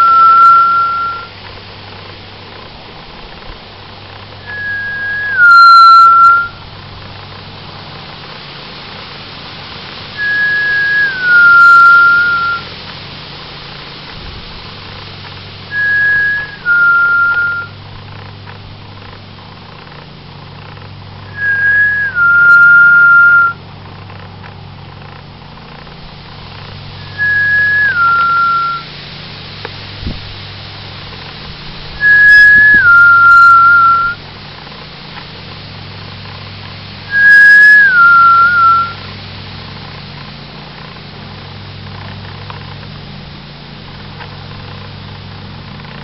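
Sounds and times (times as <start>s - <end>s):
person whistling two-note phrases: 0.0s - 1.3s, 4.5s - 6.6s, 10.2s - 12.6s, 15.7s - 17.7s, 21.3s - 23.6s, 27.0s - 28.8s, 32.0s - 34.2s, 37.1s - 39.0s.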